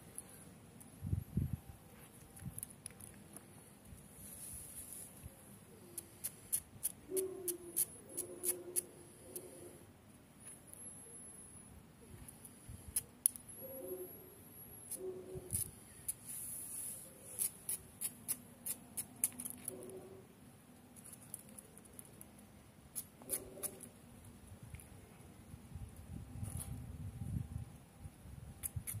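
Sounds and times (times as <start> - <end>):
dog claws clicking on stone tiles: 17.4 - 20.0.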